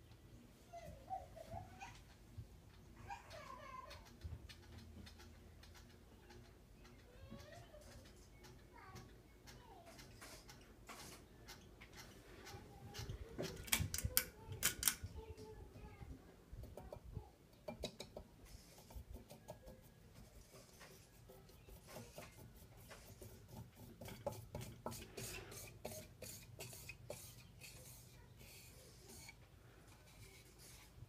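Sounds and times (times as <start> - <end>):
ceiling fan humming: 0.0 - 31.0
light clicks and rattles: 1.6 - 18.2.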